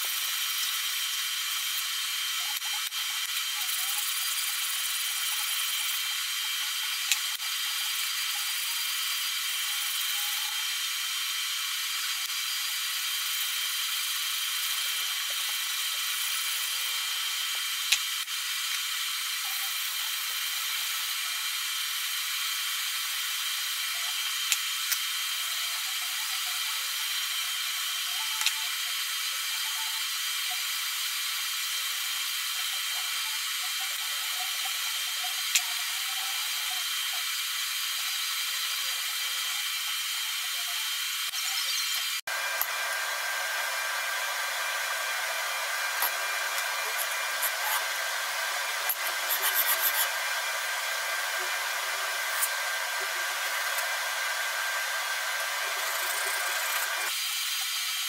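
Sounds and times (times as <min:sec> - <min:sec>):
metal scraping on sandpaper: 0:45.2 - 0:57.1.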